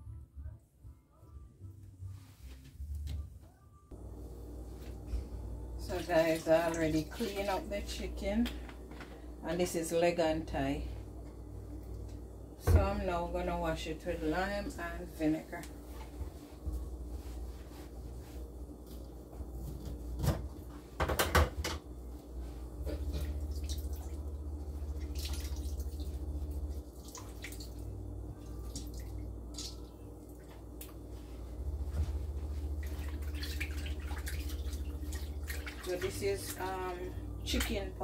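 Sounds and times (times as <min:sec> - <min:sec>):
water running in a steel sink: 0:05.8 - 0:08.3, 0:22.8 - 0:30.4, 0:32.7 - 0:38.0.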